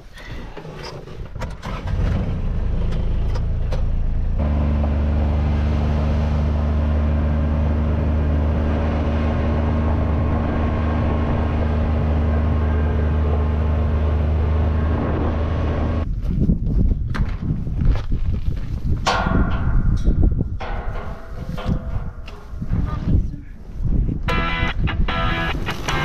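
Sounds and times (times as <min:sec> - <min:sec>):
utility vehicle engine running: 0:01.6 - 0:16.1.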